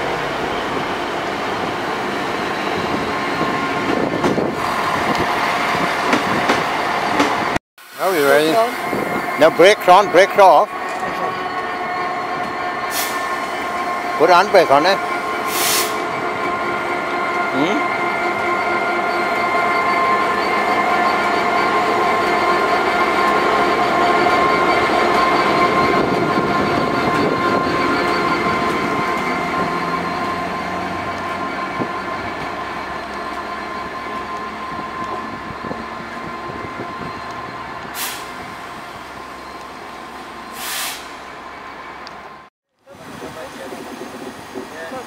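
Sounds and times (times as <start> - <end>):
diesel locomotive engine: 0.0 - 45.0.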